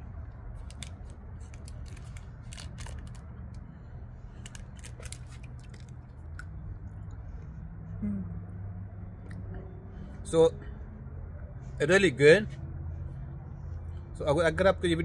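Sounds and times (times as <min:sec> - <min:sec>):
low steady rumble: 0:00.0 - 0:15.0
wrapper crinkling: 0:00.6 - 0:03.2, 0:04.4 - 0:06.0.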